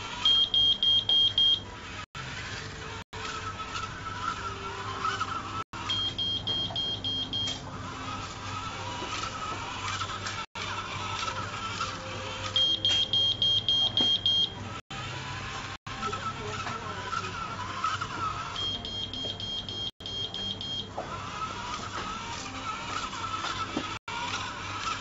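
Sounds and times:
small gear motors whining: 0.0s - 25.0s
quick high-pitched buzzer beeps: 0.2s - 1.6s, 5.0s - 7.6s, 12.4s - 14.6s, 17.8s - 20.9s.

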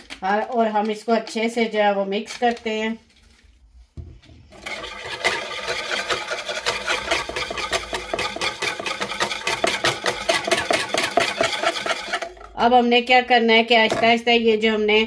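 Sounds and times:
whisk clattering in a bowl: 4.6s - 12.6s.

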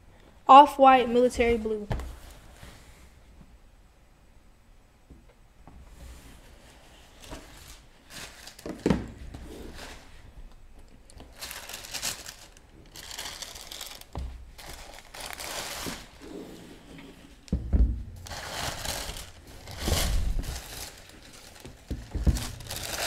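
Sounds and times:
tissue paper rustling: 6.3s - 8.8s, 9.5s - 10.3s, 11.2s - 16.6s, 18.2s - 23.0s
thump: 17.5s - 18.2s.

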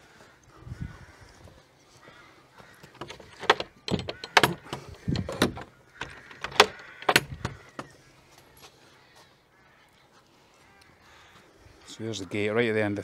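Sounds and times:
metal gate latch clicks: 2.9s - 7.9s.

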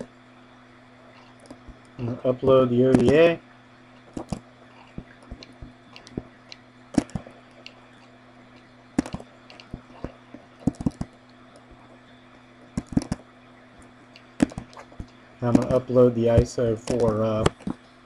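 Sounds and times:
steady low hum: 0.0s - 18.0s
computer mouse clicking: 8.6s - 11.7s, 12.8s - 13.2s, 16.8s - 17.8s.

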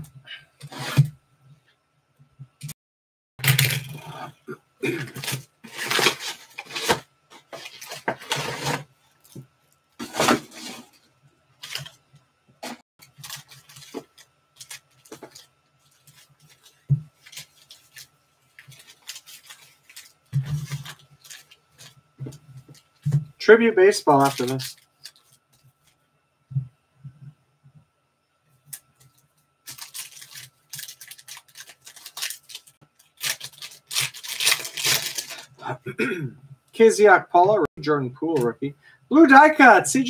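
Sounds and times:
foil packs crinkling: 5.2s - 9.4s, 12.6s - 23.1s, 24.1s - 25.8s, 29.6s - 35.6s.

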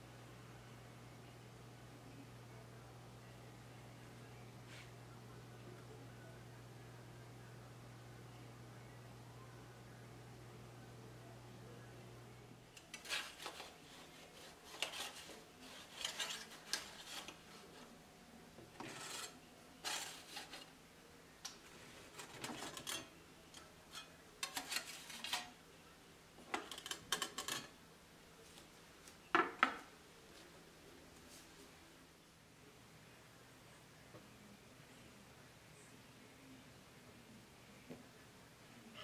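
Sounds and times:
metal spatula scraping baking pan: 12.8s - 17.9s, 18.8s - 20.7s, 22.1s - 23.1s, 23.8s - 25.6s.

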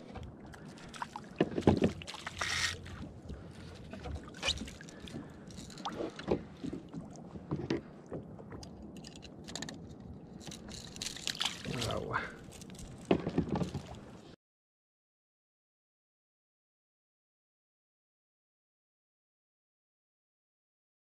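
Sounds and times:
knocks and clicks against hull: 0.0s - 11.8s, 12.5s - 14.2s
water lapping: 0.0s - 14.4s
fish splashing at water surface: 11.1s - 11.8s.

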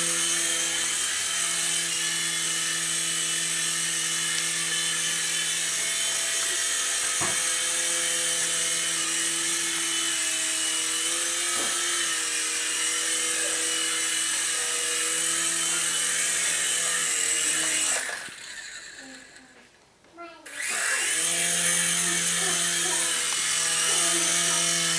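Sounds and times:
rc helicopter motors whining: 0.0s - 19.6s, 20.4s - 24.9s.

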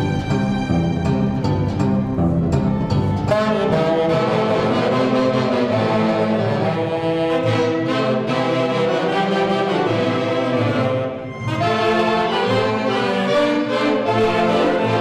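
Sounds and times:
violins: 0.0s - 15.0s
saxophones playing in harmony: 3.1s - 15.0s.

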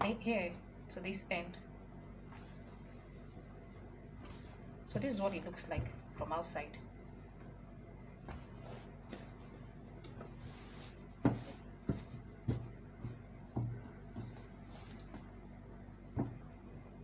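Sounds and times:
fabric rustling: 8.2s - 15.4s.

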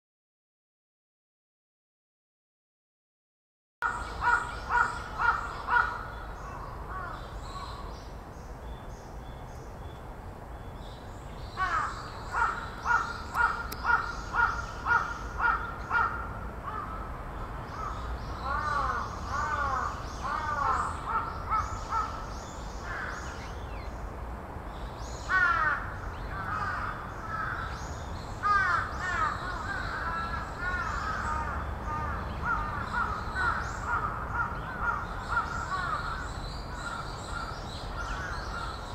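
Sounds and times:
crows cawing: 3.8s - 7.7s, 11.6s - 17.1s, 17.7s - 22.2s, 22.8s - 23.4s, 25.3s - 27.8s, 28.4s - 38.9s.

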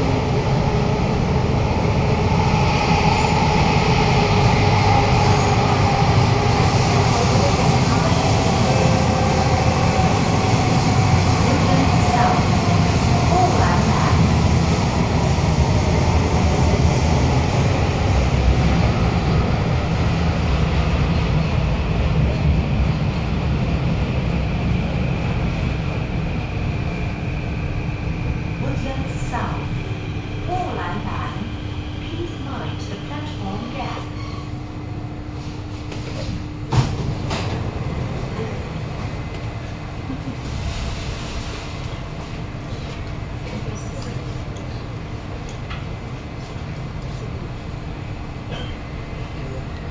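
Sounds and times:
train wheels on track rumbling: 0.0s - 49.9s
train doors opening thud: 36.0s - 37.7s.

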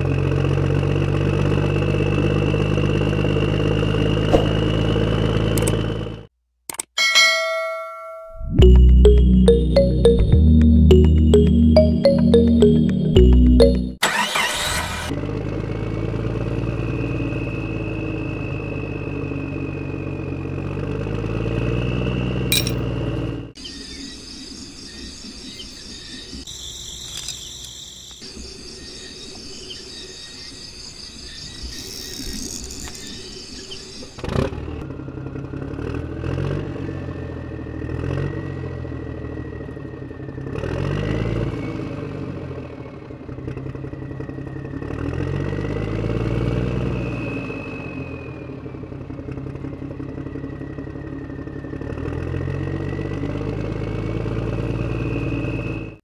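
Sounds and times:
tractor engine revving: 13.2s - 16.5s.

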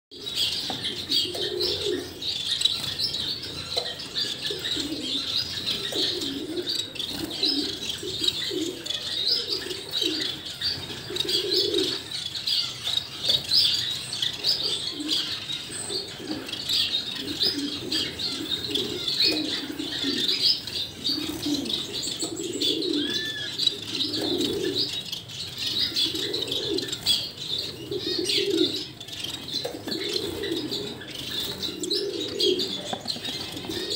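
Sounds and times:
low bird calls: 0.1s - 33.9s
nestlings begging chirps: 0.2s - 33.9s.

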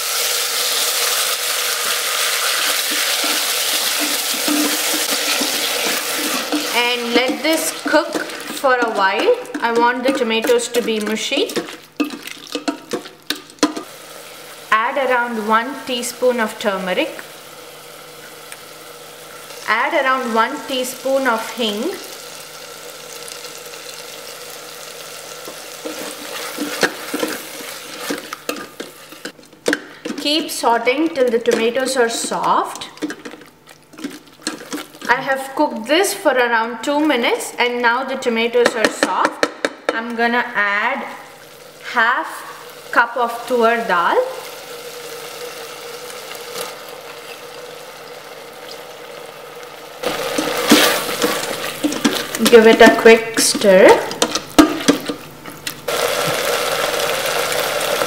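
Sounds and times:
tomatoes sizzling in hot oil: 0.0s - 38.6s, 40.6s - 58.0s
steady appliance hum: 0.0s - 58.0s
spatula scraping and knocking pot: 2.7s - 13.9s, 50.0s - 55.2s.

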